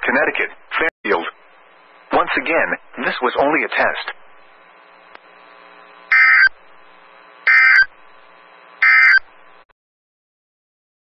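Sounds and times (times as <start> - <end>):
warbling digital tone bursts: 6.1 - 6.5, 7.5 - 7.9, 8.8 - 9.2.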